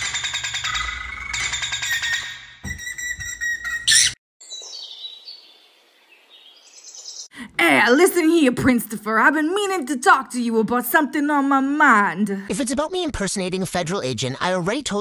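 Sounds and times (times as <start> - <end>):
pet bird chirping: 0.4 - 5.6.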